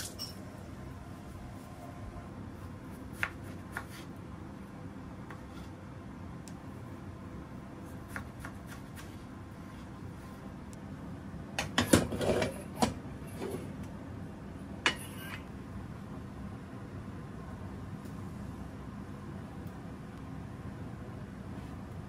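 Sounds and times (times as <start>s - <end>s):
knife slicing cucumber on board: 3.1s - 4.1s, 7.9s - 9.2s.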